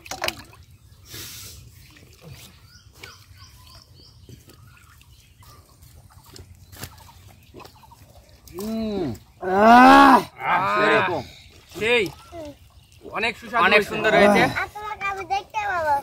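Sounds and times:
bird chirping: 2.3s - 9.4s.

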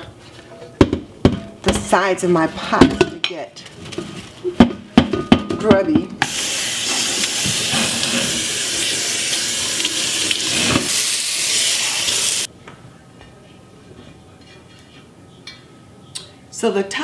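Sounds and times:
faucet water rushing into sink: 6.2s - 12.5s.

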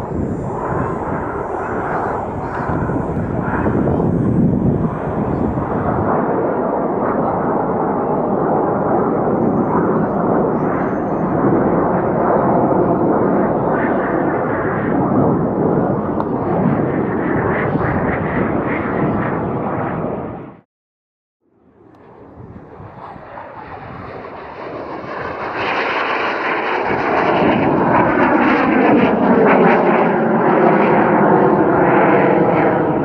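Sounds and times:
jet engines roaring overhead: 0.0s - 20.6s, 21.6s - 33.0s.

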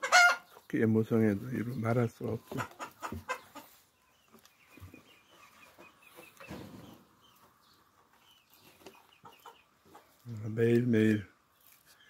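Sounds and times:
chickens clucking: 0.0s - 12.0s
soft rustle: 2.4s - 12.0s.

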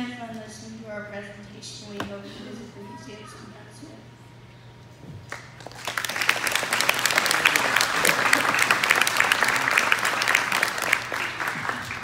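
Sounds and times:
audience applause: 5.3s - 12.0s.

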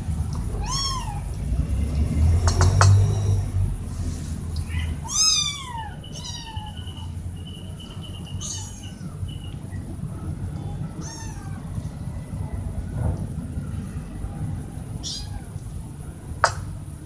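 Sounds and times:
cats meowing: 0.5s - 1.4s, 4.6s - 9.6s, 10.4s - 11.8s, 15.0s - 15.6s.

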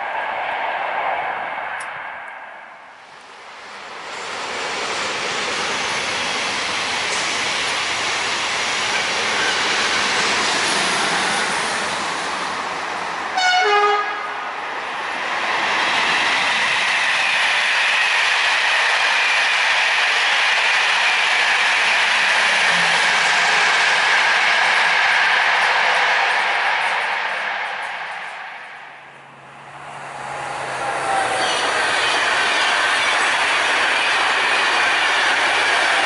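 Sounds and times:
train rolling past: 0.0s - 36.0s
locomotive horn blast: 13.4s - 14.4s.

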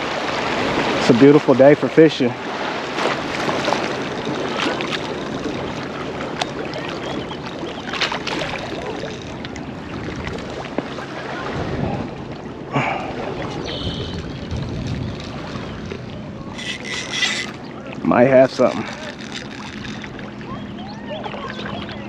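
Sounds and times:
waves lapping at shore: 0.0s - 22.0s
wind on microphone: 3.2s - 12.4s, 13.0s - 17.8s.

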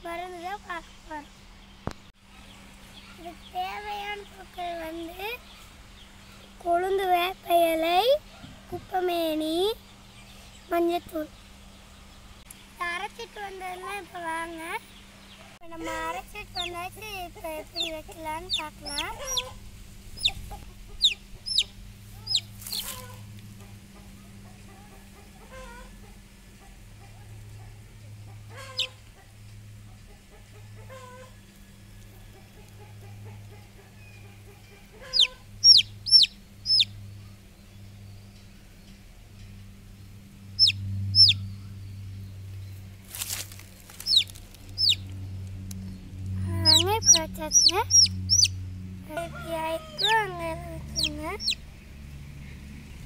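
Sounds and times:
rustle: 0.0s - 40.4s, 41.3s - 46.4s
chick peeping: 15.8s - 29.3s, 32.3s - 37.0s, 40.6s - 41.4s, 44.0s - 45.1s, 46.5s - 51.6s.

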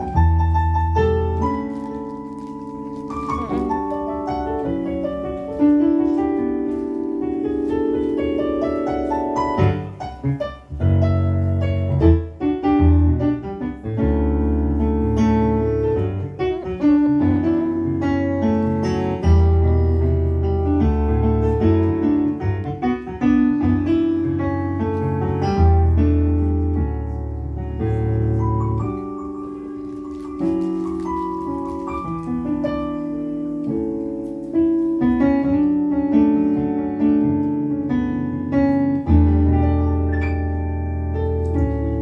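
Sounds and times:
deep piano bass line: 0.0s - 42.0s
piano chords: 0.0s - 42.0s.

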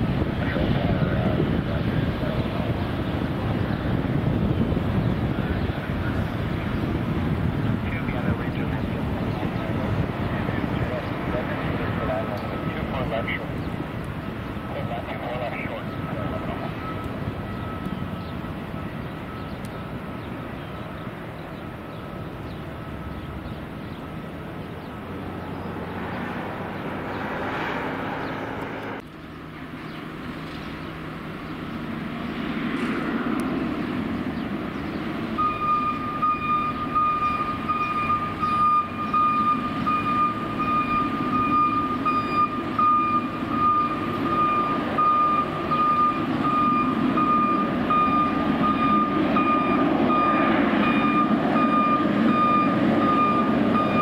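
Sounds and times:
traffic rumble: 0.0s - 54.0s
vehicle engine noise: 0.0s - 54.0s
reversing alarm beeping: 15.7s - 20.0s, 35.4s - 54.0s.

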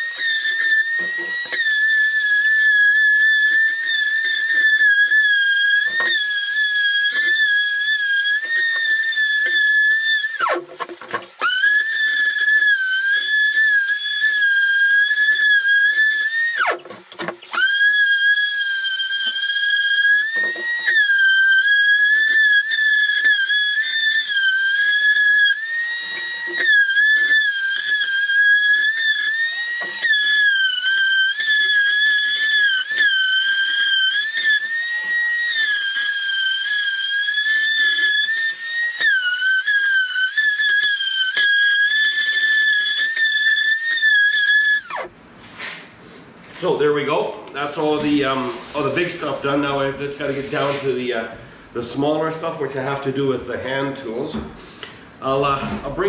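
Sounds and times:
orbital sander whining: 0.0s - 10.8s, 11.4s - 45.1s.

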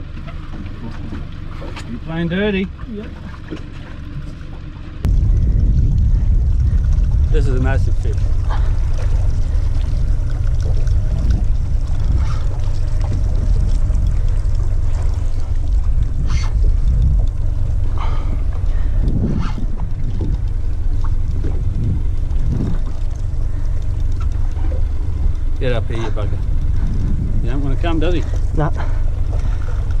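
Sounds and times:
wind buffeting microphone: 5.0s - 30.0s
faint clicks and knocks: 8.1s - 30.0s.

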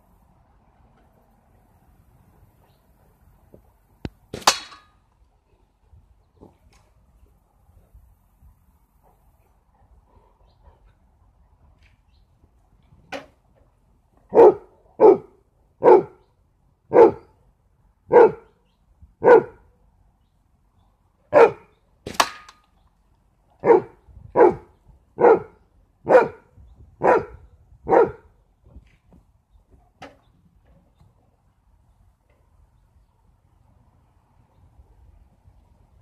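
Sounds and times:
dog barking: 14.3s - 16.2s, 16.9s - 17.3s, 18.1s - 18.5s, 19.2s - 19.6s, 21.3s - 21.7s, 23.6s - 26.4s, 27.0s - 28.3s.

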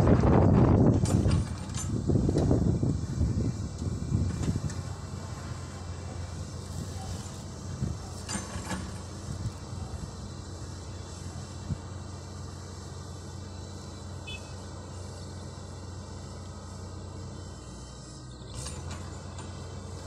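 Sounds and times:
distant excavator engine humming: 0.0s - 20.0s.

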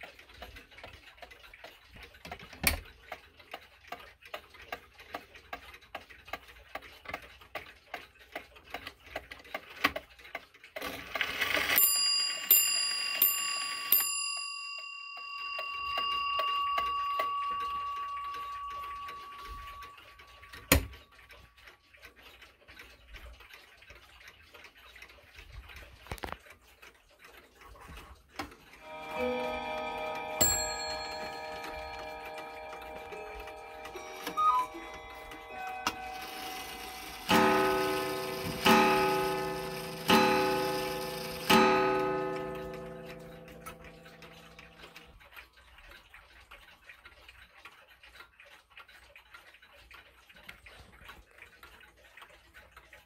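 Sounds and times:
clock ticking: 0.0s - 53.0s
another clock gong ringing: 15.5s - 20.9s, 28.8s - 45.0s
clock gong striking: 28.8s - 45.0s.

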